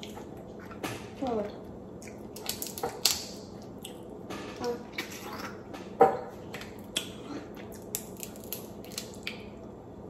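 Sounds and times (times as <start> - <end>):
crab shell cracking: 2.2 - 4.0, 7.8 - 9.5.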